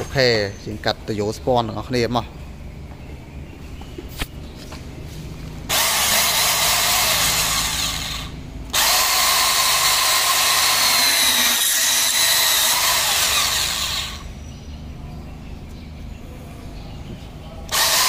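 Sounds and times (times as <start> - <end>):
band saw whining: 5.4 - 15.0, 17.6 - 18.0
saw cutting metal tube: 5.7 - 14.3, 17.7 - 18.0.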